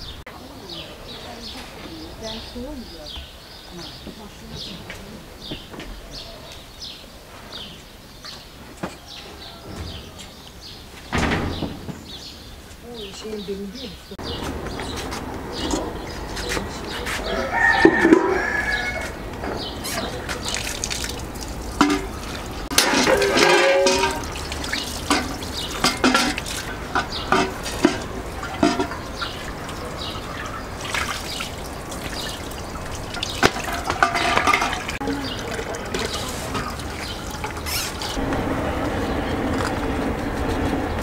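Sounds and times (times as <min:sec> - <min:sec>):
water pouring into metal urn: 0:19.8 - 0:38.2
knocks and clinks: 0:21.8 - 0:29.4, 0:33.2 - 0:35.0.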